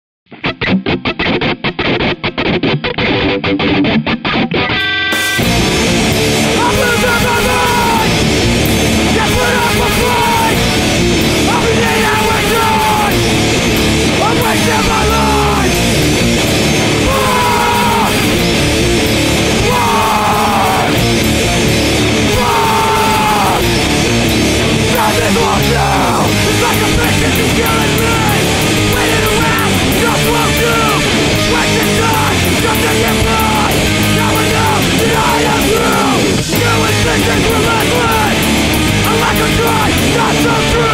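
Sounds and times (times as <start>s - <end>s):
distorted electric guitars: 0.3s - 40.9s
drums pounding: 5.2s - 40.9s
shouted vocals: 6.5s - 8.3s, 9.0s - 10.8s, 11.4s - 13.4s, 14.0s - 16.0s, 16.8s - 18.6s, 19.4s - 21.2s, 22.1s - 40.9s.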